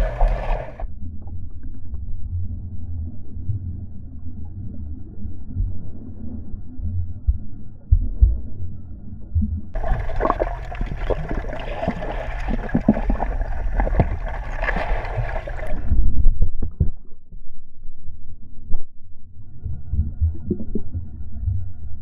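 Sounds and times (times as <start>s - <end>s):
underwater gurgling and splashing: 0.0s - 0.9s, 9.4s - 17.6s, 19.4s - 22.0s
low underwater rumble: 0.0s - 22.0s
hiss of bubbles with clicks: 9.8s - 15.9s.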